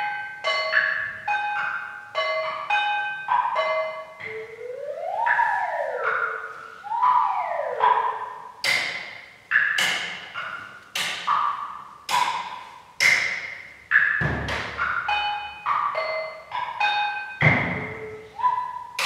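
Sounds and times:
sharp ringing percussive strikes: 0.0s - 19.0s
deep thud: 14.2s - 14.8s.

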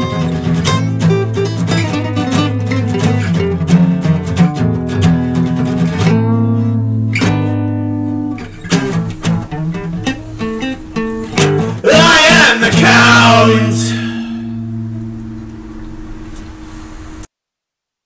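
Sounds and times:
acoustic guitar picked notes: 0.0s - 17.3s
strummed guitar chord: 6.0s - 16.4s.

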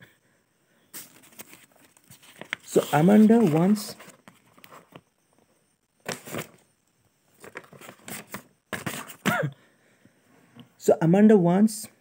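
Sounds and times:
paper pages rustling: 1.0s - 5.0s, 6.0s - 6.6s, 7.4s - 9.2s.

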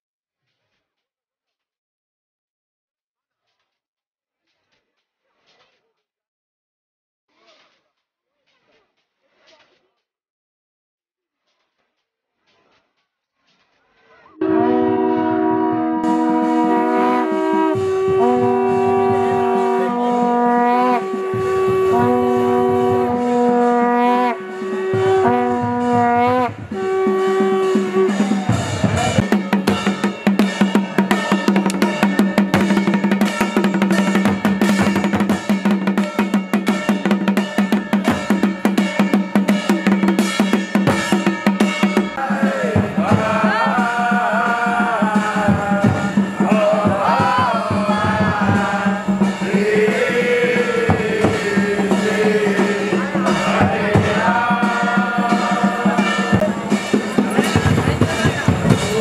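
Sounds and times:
group call-and-response chant: 14.4s - 36.5s, 41.8s - 59.0s
conch shell blasts: 14.4s - 42.2s, 42.8s - 59.0s
barrel drums beating: 14.4s - 59.0s.

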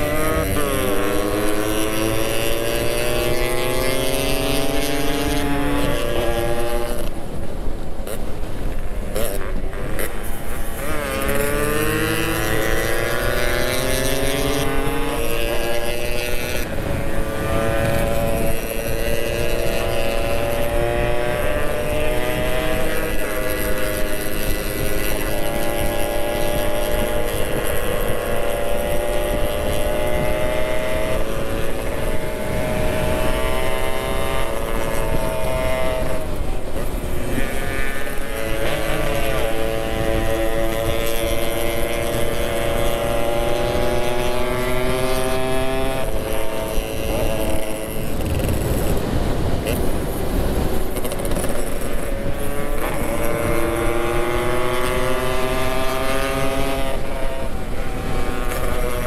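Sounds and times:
motorcycle engine running: 0.0s - 59.0s
wind rushing over microphone: 0.0s - 59.0s.

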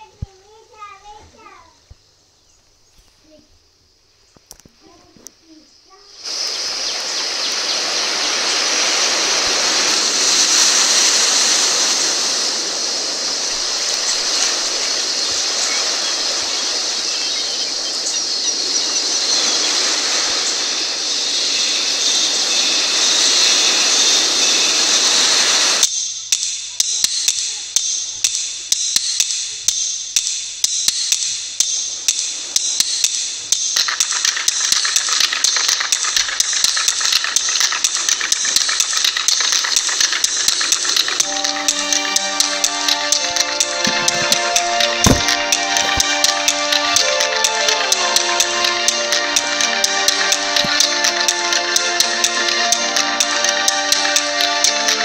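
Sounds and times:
sea surf rushing: 6.1s - 25.8s, 31.9s - 55.0s
rapid uneven clicking and tapping: 30.6s - 55.0s.

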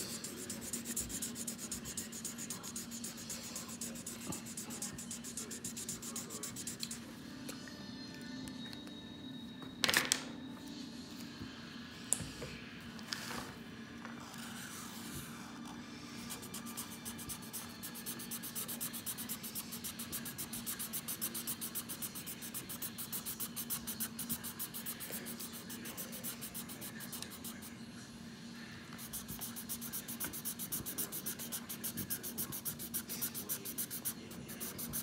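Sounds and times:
marker scribbling on paper: 0.0s - 7.0s, 16.3s - 27.6s, 29.0s - 35.0s.

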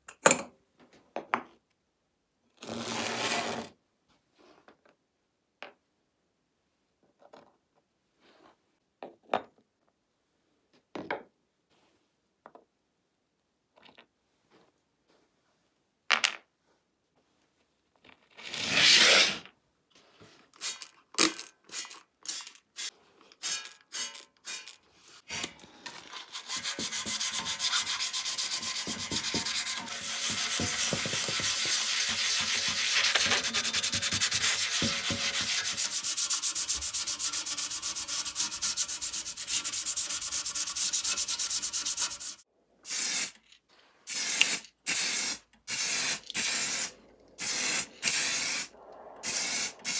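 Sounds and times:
sandpaper rubbing on metal: 26.0s - 42.4s
spray paint hisses: 26.6s - 43.4s, 44.1s - 49.9s.

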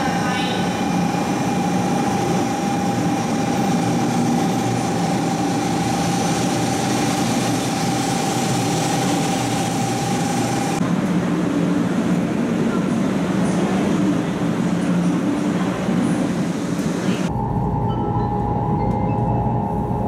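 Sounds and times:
steady high tone: 17.2s - 20.0s.

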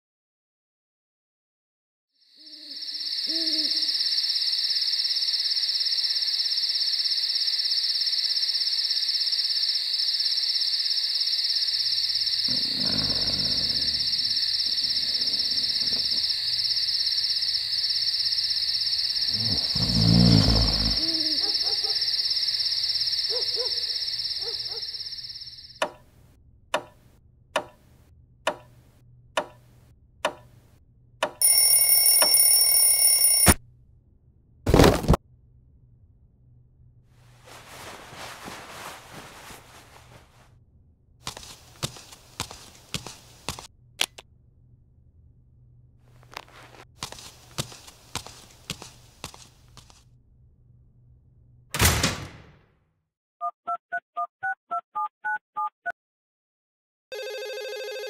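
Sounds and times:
owl hooting: 2.4s - 4.3s, 19.2s - 22.3s
high-pitched insect chorus: 2.4s - 25.8s
alarm clock bell ringing: 31.4s - 33.6s, 57.2s - 58.0s.

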